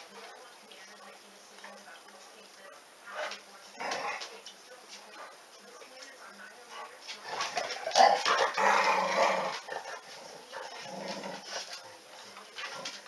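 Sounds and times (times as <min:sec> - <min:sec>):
dogs growling: 0:03.1 - 0:04.4, 0:06.8 - 0:13.0.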